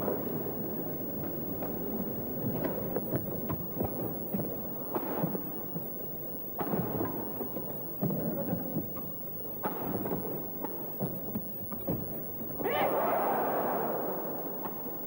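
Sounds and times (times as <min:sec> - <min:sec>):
arena crowd noise: 0:12.2 - 0:15.0.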